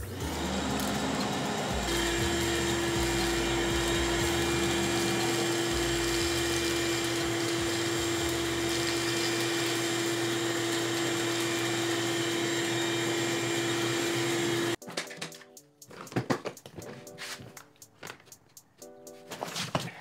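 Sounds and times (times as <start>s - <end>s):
shop vacuum motor whine: 0.0s - 14.8s.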